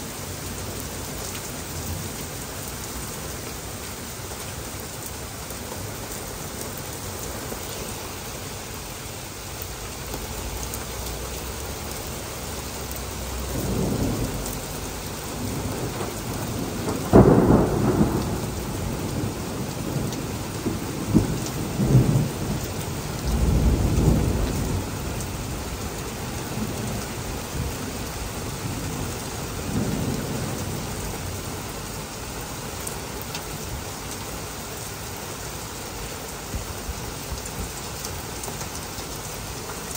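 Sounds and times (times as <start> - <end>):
heavy rain falling: 0.0 - 39.9
thunder rumbling: 13.1 - 32.0
sharp thunder crack: 15.4 - 22.2.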